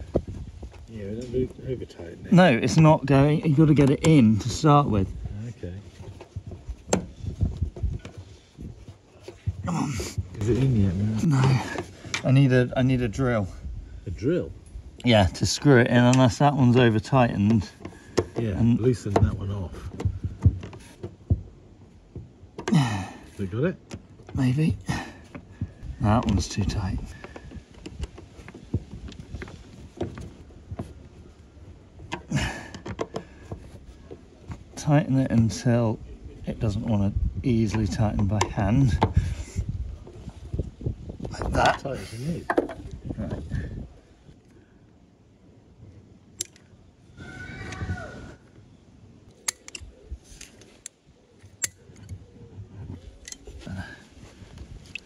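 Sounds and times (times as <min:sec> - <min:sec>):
hand tool clicks and scrapes: 0:49.3 - 0:52.2, 0:53.2 - 0:53.6.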